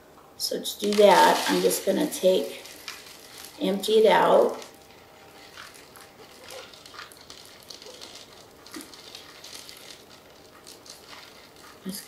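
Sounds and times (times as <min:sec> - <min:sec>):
granular soil shifting: 0:00.7 - 0:12.0
plastic pot flexing: 0:04.4 - 0:12.0.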